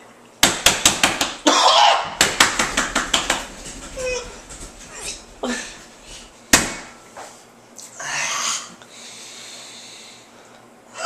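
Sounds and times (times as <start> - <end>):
sharp knock: 2.2 - 4.7, 6.5 - 6.9.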